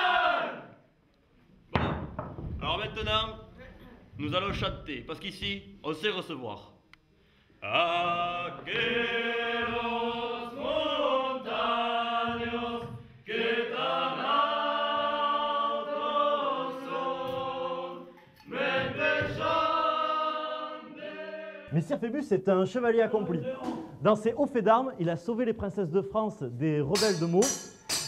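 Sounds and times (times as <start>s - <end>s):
group singing slow chant: 0.0s - 0.9s, 7.6s - 21.8s.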